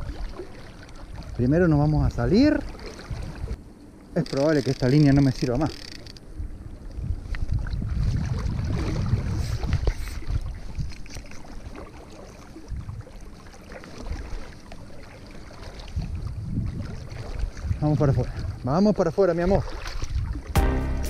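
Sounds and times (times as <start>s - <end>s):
wind buffeting microphone: 1.0s - 3.6s, 5.0s - 11.8s, 12.6s - 13.2s, 15.8s - 18.8s, 19.5s - 20.6s.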